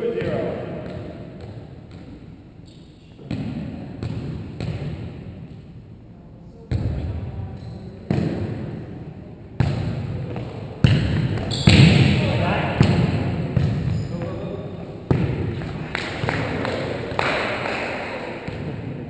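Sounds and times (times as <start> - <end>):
volleyball being struck: 12.8 - 14.0, 15.1 - 19.0.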